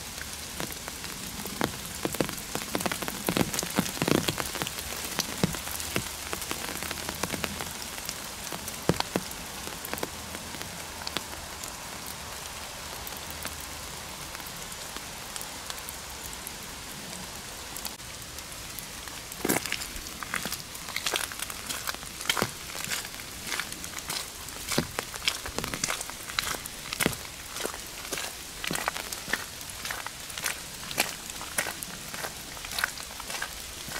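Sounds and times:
rain on an umbrella: 0.0 - 33.9
footsteps on gravel: 19.4 - 33.9.

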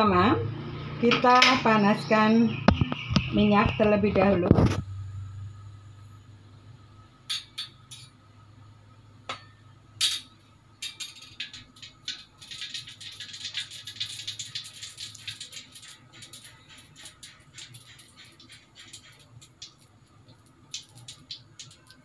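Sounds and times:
oil crackling in a wok: 10.7 - 22.0
oil ticking: 10.8 - 22.0.

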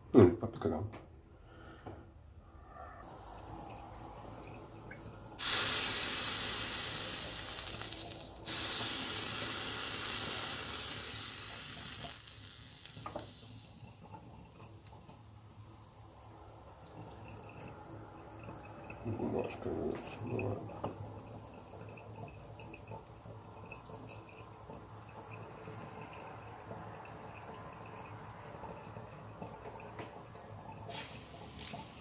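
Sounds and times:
water running from a tap: 3.1 - 32.0.

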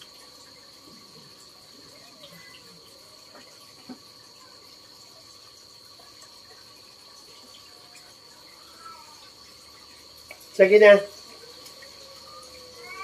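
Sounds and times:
night insects droning: 0.0 - 13.0.

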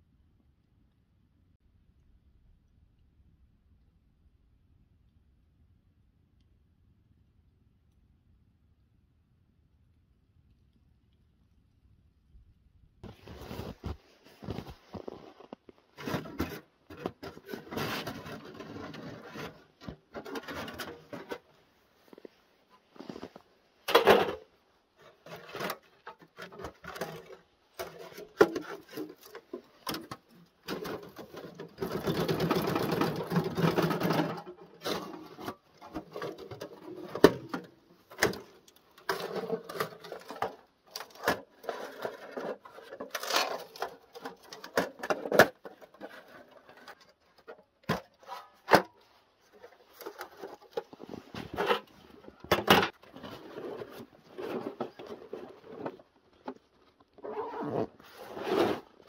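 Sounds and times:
long metal scrape: 58.0 - 59.0.

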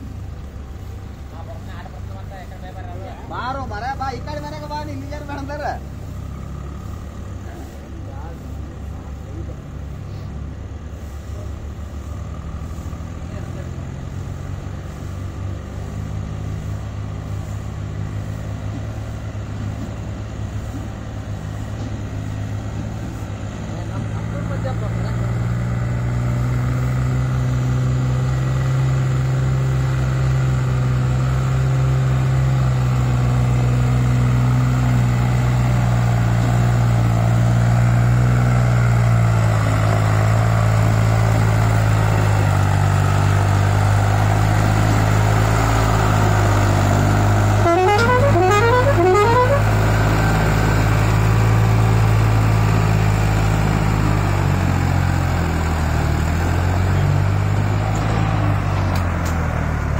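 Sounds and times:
tractor diesel engine running: 0.0 - 59.9
horn rising whoops: 47.5 - 49.8.

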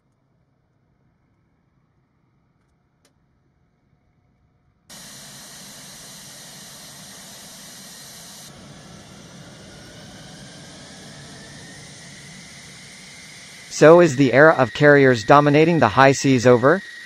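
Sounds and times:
faint rising whine: 3.6 - 17.0
jet engine running: 4.9 - 17.0.

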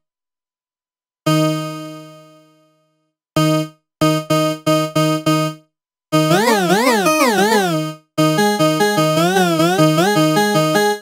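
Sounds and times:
bright synthesizer notes: 6.2 - 8.6.

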